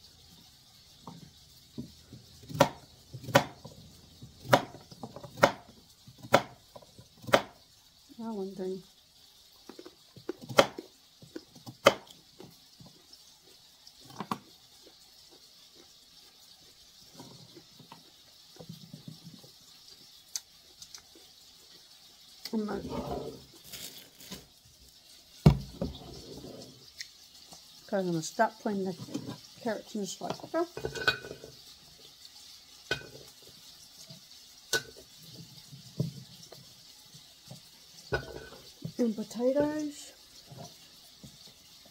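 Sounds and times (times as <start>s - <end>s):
knife chopping on cutting board: 2.5s - 3.6s, 4.4s - 5.6s, 7.2s - 7.5s.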